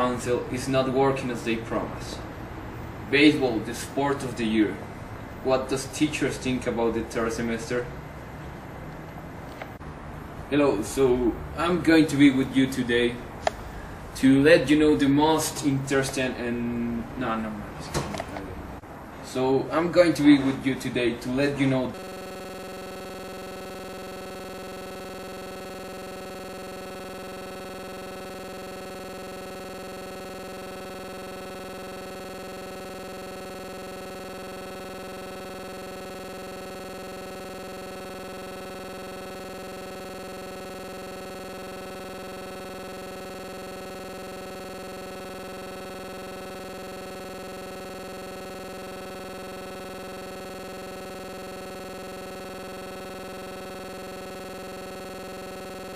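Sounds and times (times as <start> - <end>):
steady electronic drone: 21.9 - 55.9.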